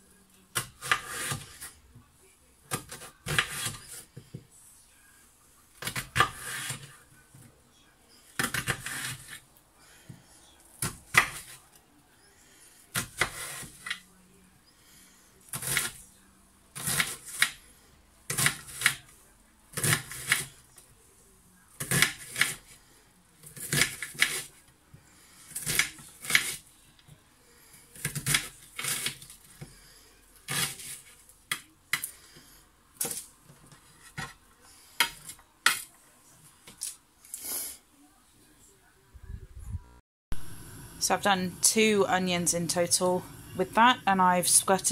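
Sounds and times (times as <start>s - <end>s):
knife chopping onions on board: 0.5s - 1.7s, 2.7s - 4.0s, 5.8s - 6.9s, 8.4s - 9.4s, 12.9s - 14.0s, 16.8s - 17.6s, 18.3s - 19.0s, 19.8s - 20.5s, 21.8s - 22.6s.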